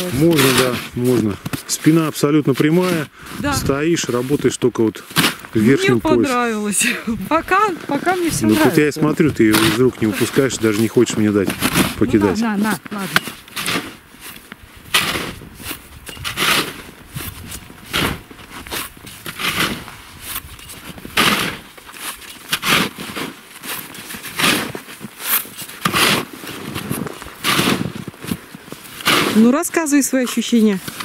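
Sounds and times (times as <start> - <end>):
snow shovel scraping snow: 0.0 - 31.0.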